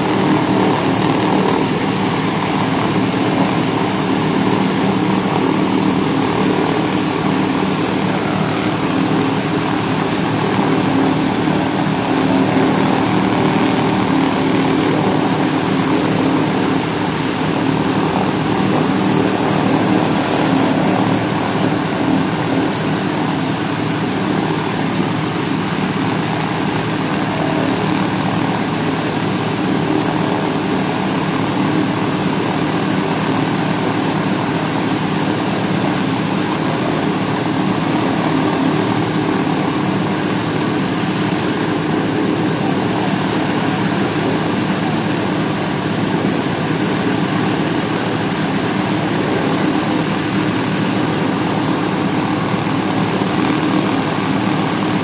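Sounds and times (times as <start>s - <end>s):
radial aircraft engines running: 0.0s - 55.0s.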